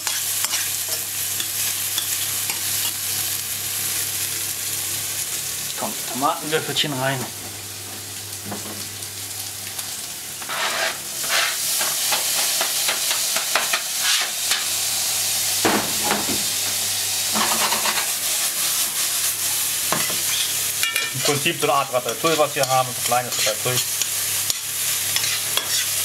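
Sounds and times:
vegetables sizzling in oil: 0.0s - 26.0s
scraping from cutting board: 10.4s - 11.6s, 14.0s - 14.4s
stirring scrapes and pan knocks: 25.2s - 26.0s.

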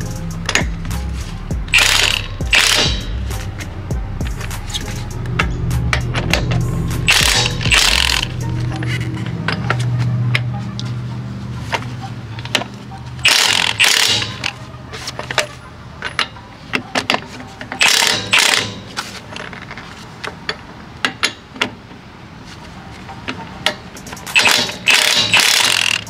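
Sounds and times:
impact wrench hammering: 1.7s - 3.6s, 5.3s - 8.4s, 13.2s - 14.6s, 17.8s - 18.9s, 24.3s - 26.0s.

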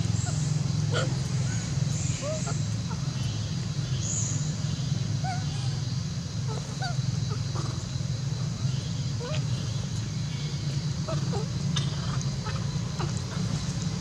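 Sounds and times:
monkeys squeaky calls: 0.1s - 1.3s, 2.0s - 3.2s, 11.0s - 13.7s.

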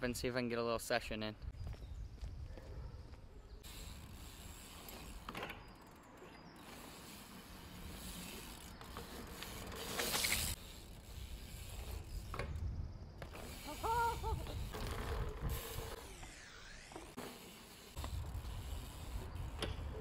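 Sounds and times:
bike rolling over cobblestones: 3.6s - 20.0s.

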